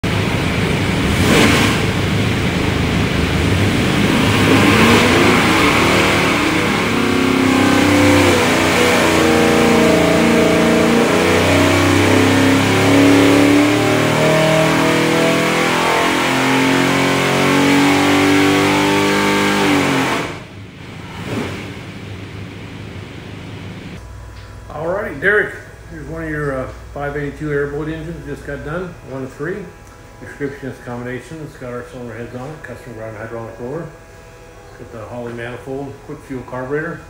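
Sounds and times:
engine running at full throttle: 0.0s - 24.1s.

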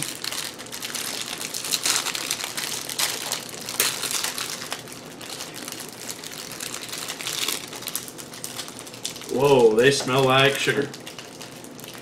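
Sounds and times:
plastic wrappers crinkling: 0.0s - 12.0s.

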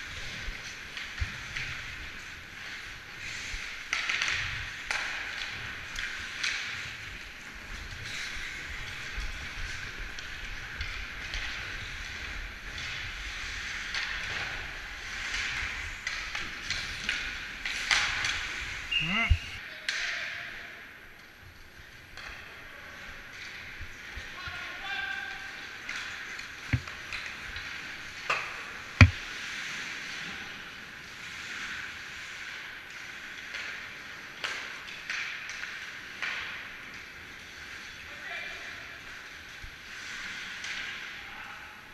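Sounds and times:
skate blades scraping ice: 0.0s - 18.9s
hockey sticks and puck clacking: 0.0s - 20.4s, 21.2s - 41.5s.

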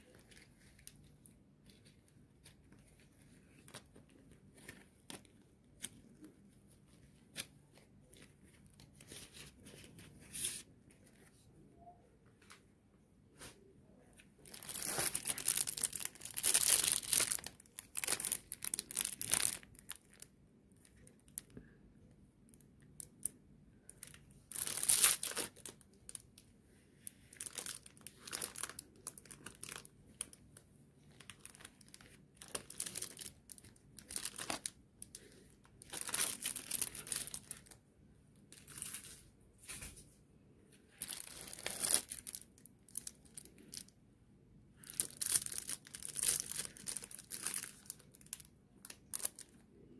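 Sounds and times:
plastic packaging crinkling: 14.4s - 21.5s, 23.9s - 26.3s, 27.0s - 37.8s, 41.0s - 43.9s, 44.8s - 49.6s.

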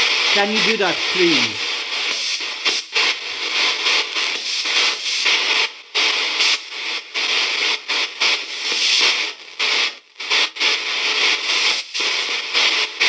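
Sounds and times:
choppy radio static bursts: 0.0s - 1.6s.

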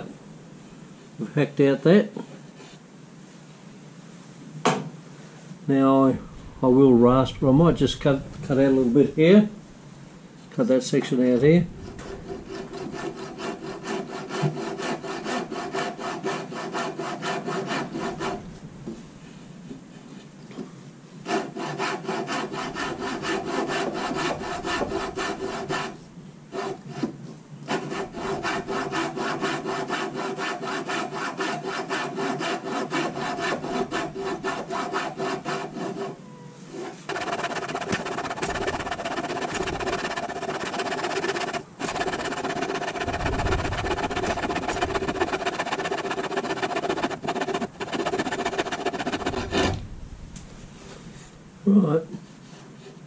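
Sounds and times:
coping saw cutting wood: 11.2s - 18.4s, 21.3s - 27.1s, 27.7s - 36.1s, 37.0s - 49.8s.

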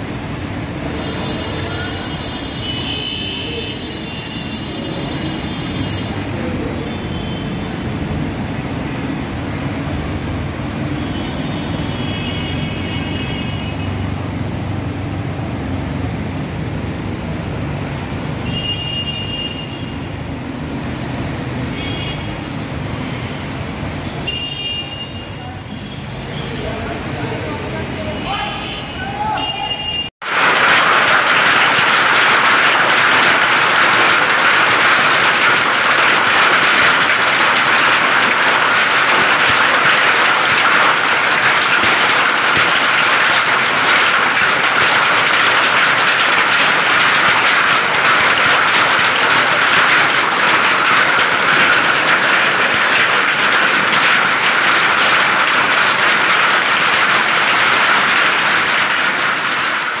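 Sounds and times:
heavy hail and rain pelting: 30.2s - 60.0s.

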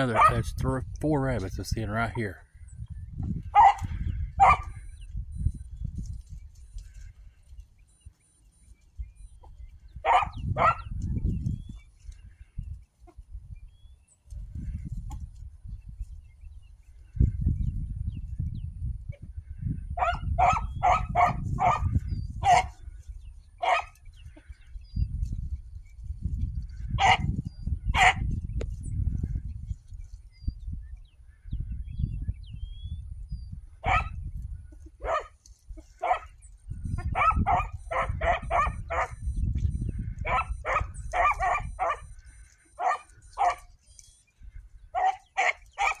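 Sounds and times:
hound barking: 0.0s - 0.5s, 3.5s - 4.8s, 10.0s - 10.9s, 20.0s - 22.8s, 23.6s - 24.0s, 26.9s - 27.3s, 27.9s - 28.3s, 33.8s - 34.2s, 35.0s - 36.4s, 37.0s - 39.2s, 40.1s - 43.8s, 44.9s - 46.0s.

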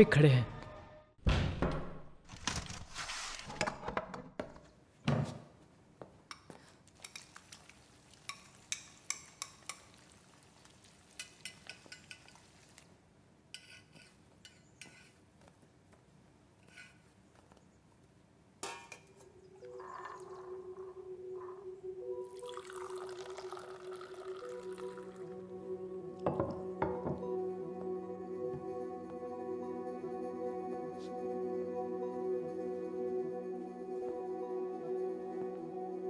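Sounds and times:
pouring: 7.0s - 13.0s, 19.5s - 20.8s, 22.2s - 25.4s
utensil clinking on pan and dishes: 11.2s - 12.5s.

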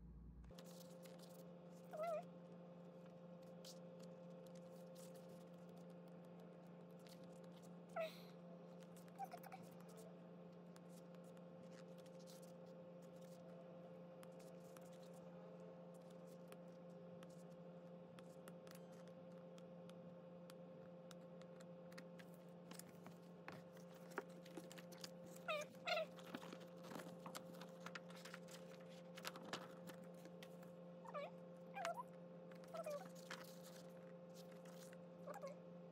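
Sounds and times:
steady hum: 0.0s - 35.9s
paper pages turning: 0.5s - 1.8s, 21.9s - 30.7s, 31.8s - 35.0s.

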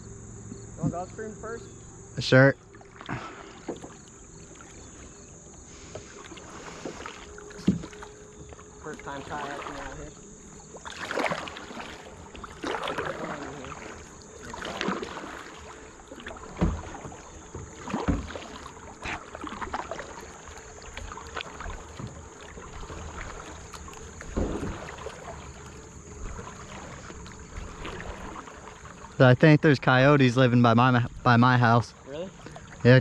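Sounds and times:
paddle strokes swishing through water: 2.6s - 30.5s, 31.2s - 33.0s.

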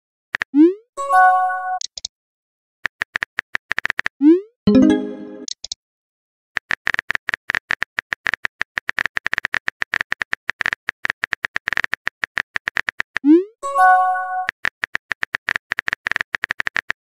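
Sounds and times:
chime of a few tones: 4.7s - 5.5s.

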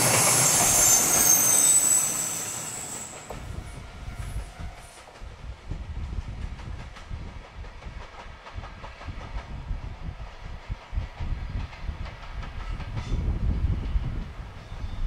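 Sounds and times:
low train rumble: 0.0s - 15.0s
train wheels clacking over rail joints: 4.2s - 14.2s.

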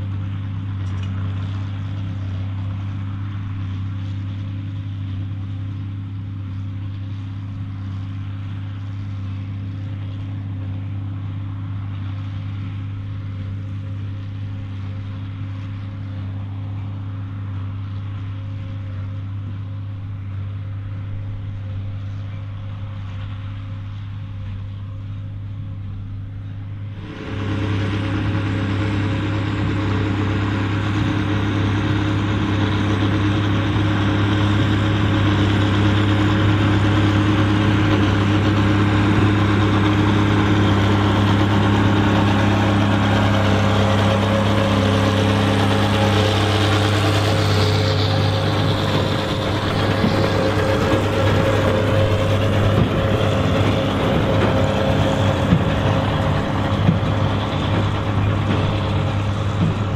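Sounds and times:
baler machinery running: 0.0s - 59.9s
tractor diesel engine under load: 0.0s - 59.9s
high whine: 26.4s - 59.9s.

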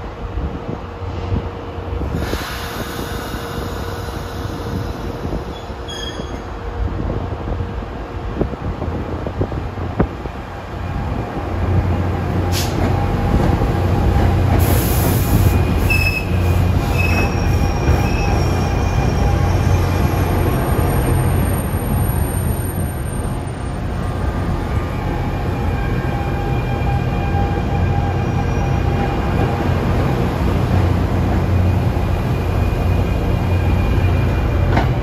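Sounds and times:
train rumble: 0.0s - 35.0s
high wheel squeals: 5.4s - 6.5s, 15.4s - 23.6s
train clanks: 12.2s - 21.4s, 26.3s - 35.0s.

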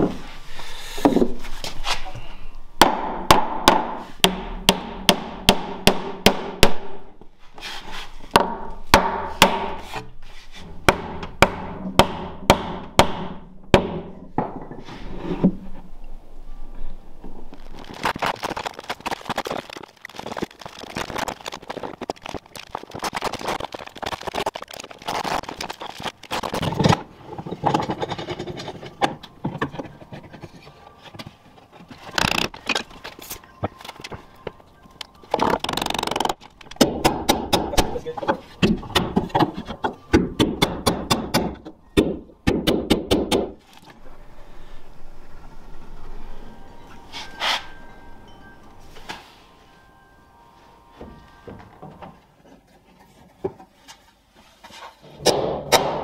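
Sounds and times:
timber knocking and handling: 1.0s - 1.8s, 13.7s - 15.6s.

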